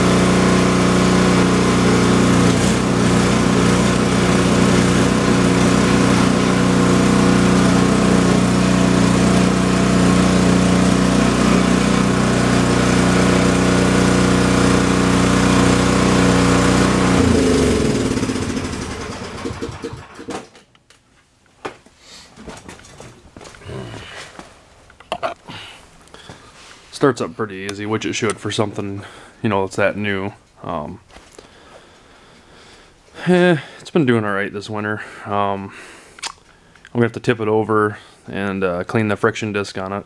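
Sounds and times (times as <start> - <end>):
snowblower engine running: 0.0 - 20.4
engine spinning down: 0.0 - 20.5.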